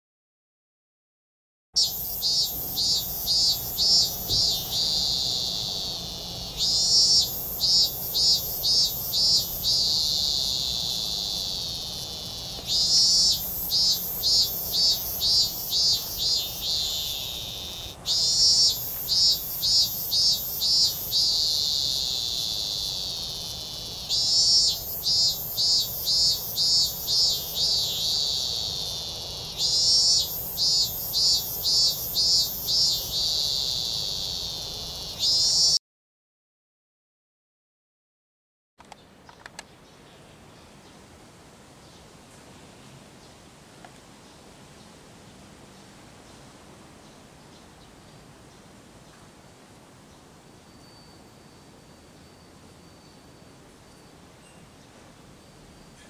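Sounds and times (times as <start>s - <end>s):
cicada singing: 1.8s - 35.8s.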